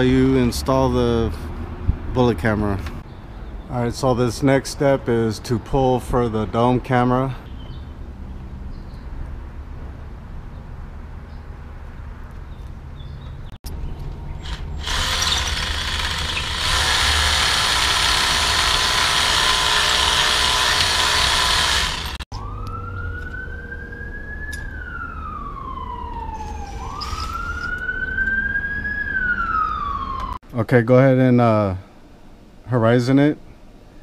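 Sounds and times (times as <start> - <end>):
power drill drilling: 14.4 - 22.2
emergency vehicle siren wailing: 22.3 - 30.4.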